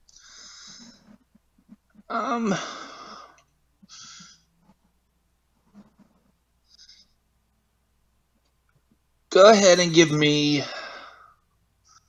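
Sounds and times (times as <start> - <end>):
person sighing: 2.1 - 4.4.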